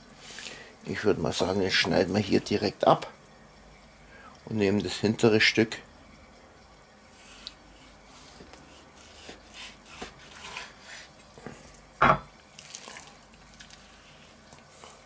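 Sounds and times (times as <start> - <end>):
knife slicing raw meat: 7.4 - 11.2
knife knocking on cutting board: 12.0 - 12.3
handling raw meat: 12.5 - 14.7.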